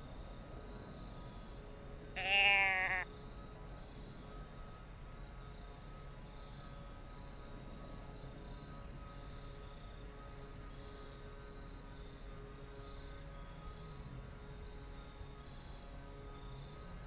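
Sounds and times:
deer bleat call: 0:02.2 - 0:03.1.

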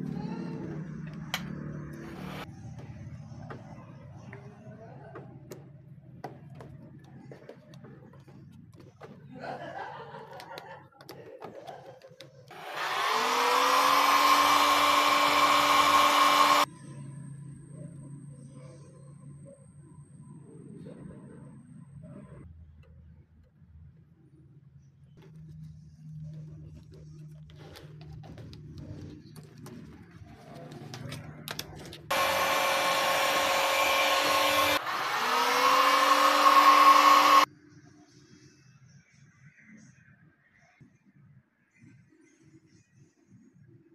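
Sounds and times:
hot-air blower running: 0:00.6 - 0:02.5, 0:12.5 - 0:16.7, 0:32.1 - 0:37.5.

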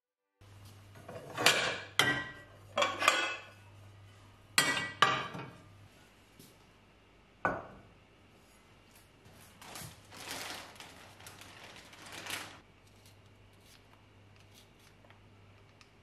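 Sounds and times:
cooking pots clanking together: 0:01.1 - 0:03.5.

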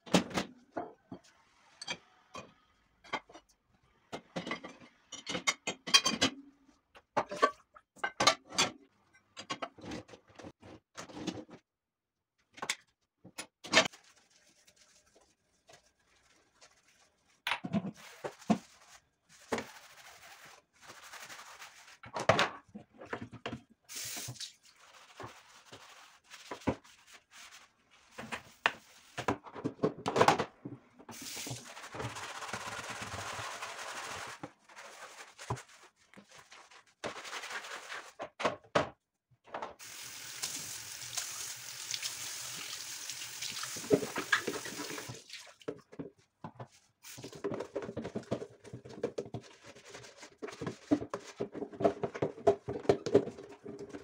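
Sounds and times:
tap water running: 0:31.1 - 0:31.7, 0:39.8 - 0:45.5
plastic containers clattering in sink: 0:43.7 - 0:49.4.

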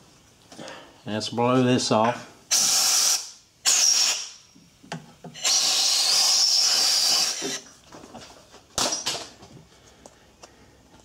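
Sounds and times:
compressed air blow gun hissing: 0:02.5 - 0:04.4, 0:05.4 - 0:07.6.

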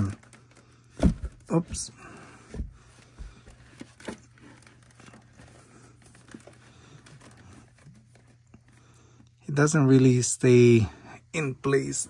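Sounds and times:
rustling: 0:00.0 - 0:09.0.

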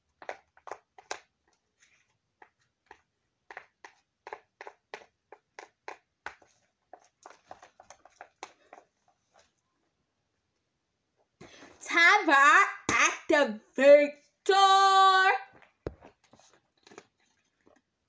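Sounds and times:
plastic spoon scraping plastic: 0:00.1 - 0:09.5.

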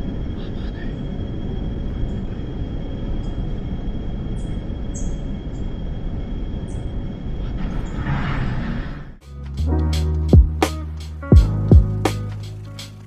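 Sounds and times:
train rumbling in tunnel: 0:00.0 - 0:09.2
thin high whine: 0:00.0 - 0:13.0.

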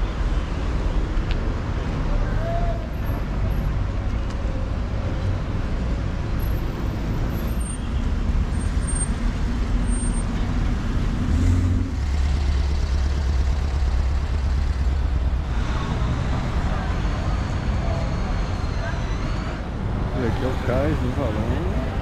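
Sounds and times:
car engines rumbling: 0:00.0 - 0:22.0.

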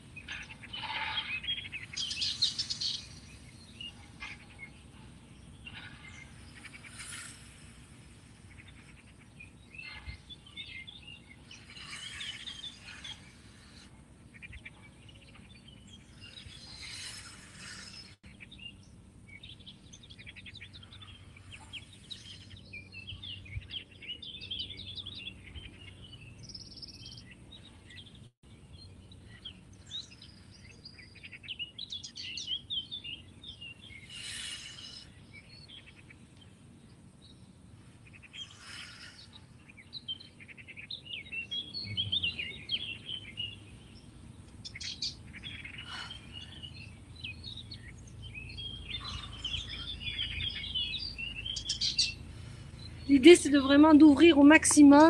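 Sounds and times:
birds chirping and singing: 0:00.0 - 0:55.0
slow deep breathing: 0:10.1 - 0:14.3, 0:15.9 - 0:18.3, 0:33.8 - 0:35.9, 0:37.7 - 0:40.0, 0:45.4 - 0:53.1.

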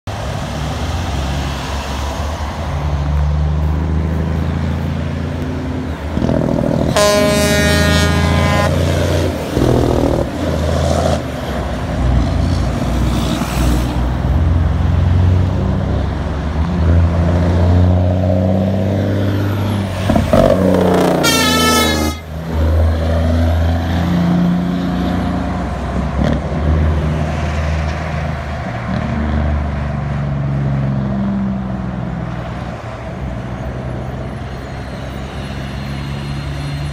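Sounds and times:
truck diesel engines: 0:00.0 - 0:36.9
truck air horn: 0:06.9 - 0:09.7, 0:21.0 - 0:22.3.

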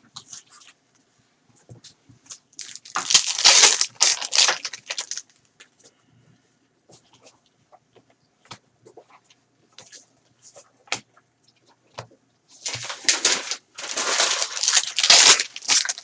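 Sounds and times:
foil wrapper crinkling: 0:02.5 - 0:05.4, 0:12.6 - 0:16.0.

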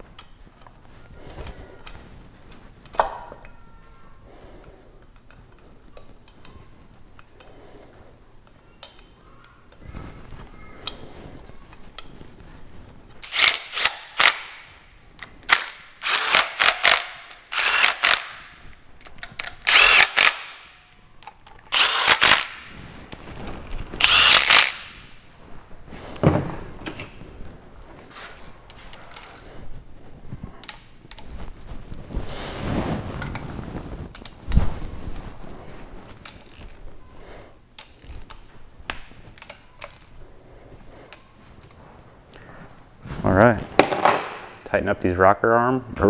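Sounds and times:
clicks of tool and parts: 0:13.2 - 0:14.6
power ratchet bursts: 0:13.2 - 0:14.6, 0:15.5 - 0:18.4, 0:19.6 - 0:20.7, 0:21.7 - 0:22.6, 0:24.0 - 0:24.9.

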